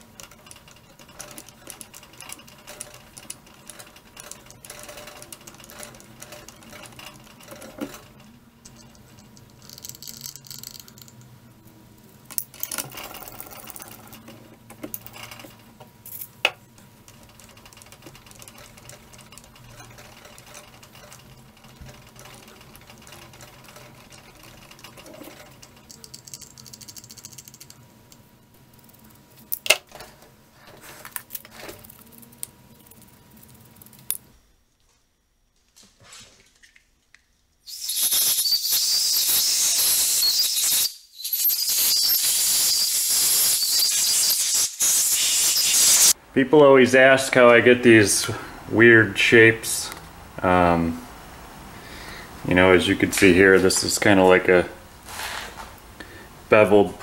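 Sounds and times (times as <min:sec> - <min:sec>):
metallic clicks and rattles: 0:00.0 - 0:11.4, 0:12.3 - 0:30.2
aerosol can spraying: 0:37.7 - 0:46.1.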